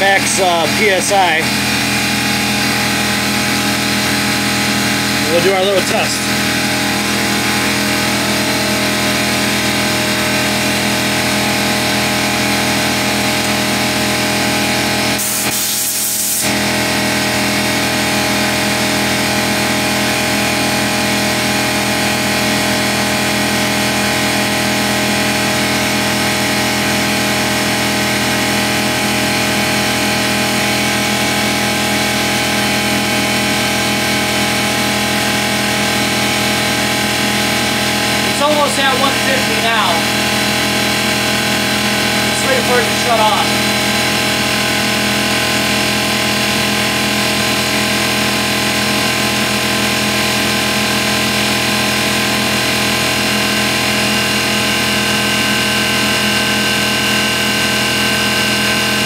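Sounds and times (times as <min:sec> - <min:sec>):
air compressor running: 0:00.0 - 0:59.0.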